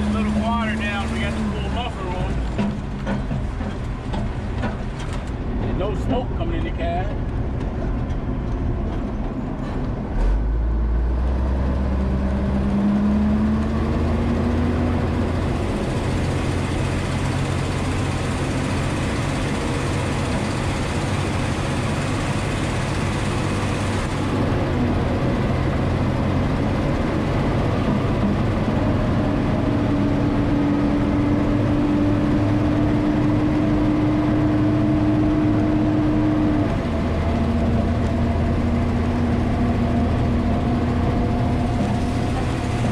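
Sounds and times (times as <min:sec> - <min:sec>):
diesel truck engine: 0:00.0 - 0:42.9.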